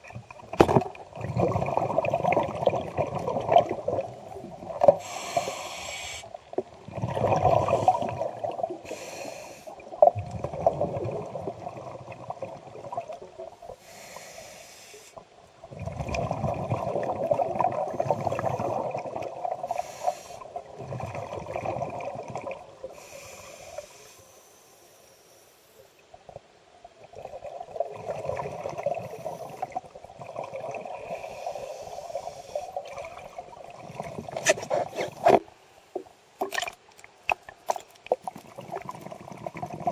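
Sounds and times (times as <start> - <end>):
bubbling exhalations: 0.6 - 5.3, 6.8 - 8.9, 9.9 - 13.2, 15.7 - 19.8, 20.6 - 22.6, 27.1 - 35.4, 37.7 - 39.9
diver inhaling through regulator: 4.9 - 6.4, 7.4 - 9.8, 13.8 - 15.2, 19.6 - 20.5, 22.9 - 25.8, 31.0 - 32.8.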